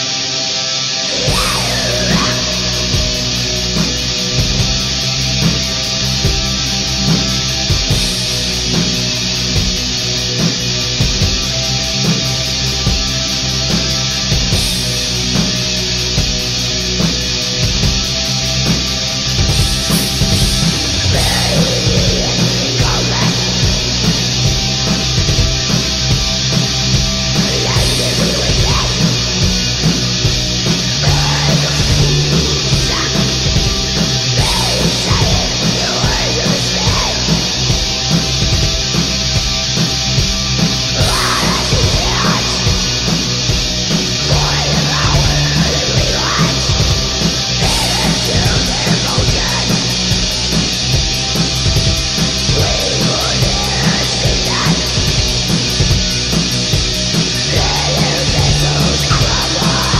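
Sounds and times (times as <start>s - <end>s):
distorted electric guitars: 0.0s - 59.9s
full band playing black metal: 0.0s - 59.9s.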